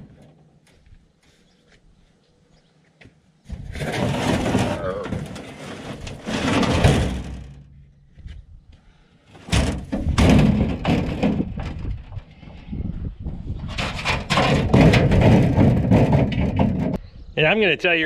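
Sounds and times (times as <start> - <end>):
metal scraping on dirt: 0.0 - 0.6, 3.4 - 8.0, 9.3 - 17.0
hollow metal clunks: 3.6 - 7.9, 9.4 - 12.7, 13.6 - 17.0.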